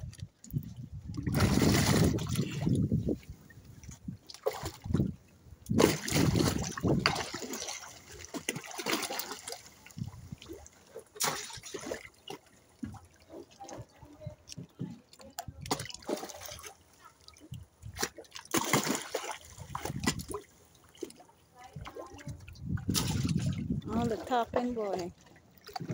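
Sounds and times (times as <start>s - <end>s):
fish splashing at water surface: 1.2s - 2.8s, 4.3s - 5.1s, 5.7s - 13.8s, 15.4s - 21.2s, 21.8s - 23.6s.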